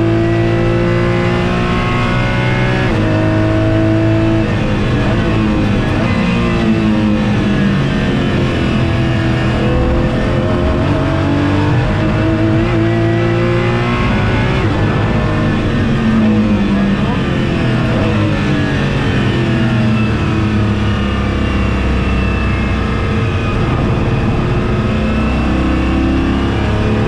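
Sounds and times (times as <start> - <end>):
car engine accelerating hard: 0.0 - 27.0.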